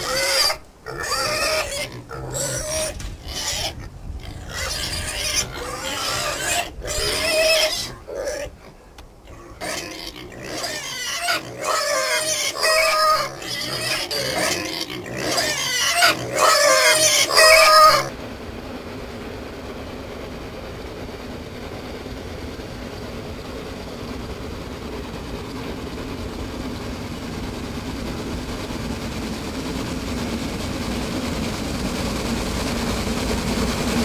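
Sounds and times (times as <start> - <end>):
pigs squealing: 0.0 - 18.2.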